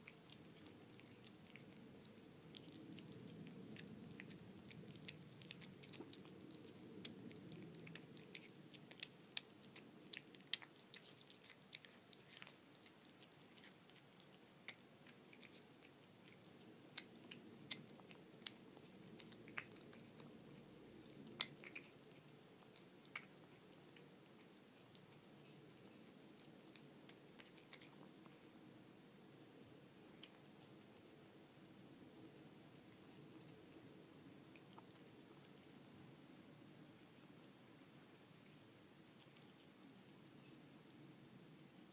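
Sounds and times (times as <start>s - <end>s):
cat mouth and teeth clicks: 0.0s - 28.6s
cat chewing food: 0.0s - 36.0s, 38.4s - 41.0s.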